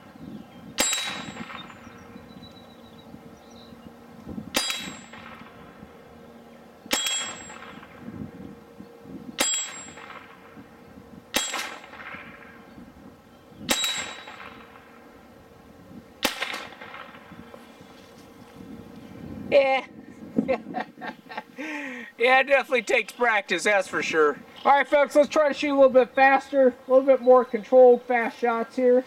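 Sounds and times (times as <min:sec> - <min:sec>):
steel target ringing: 0:00.8 - 0:02.0, 0:04.5 - 0:05.8, 0:06.9 - 0:08.1, 0:09.4 - 0:10.6, 0:11.3 - 0:12.6, 0:13.7 - 0:15.0
pistol shots: 0:04.5 - 0:05.7, 0:06.9 - 0:08.0, 0:11.3 - 0:12.6, 0:13.7 - 0:14.9, 0:16.2 - 0:17.3.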